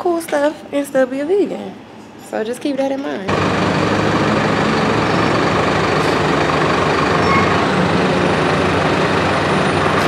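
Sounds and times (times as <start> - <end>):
large vehicle engine humming: 3.3 - 10.0.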